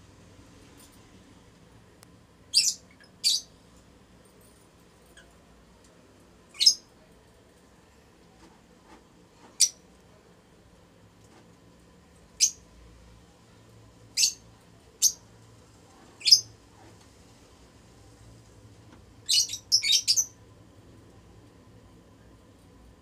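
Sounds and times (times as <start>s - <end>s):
lovebirds chirping: 2.5s - 3.5s, 19.2s - 20.3s.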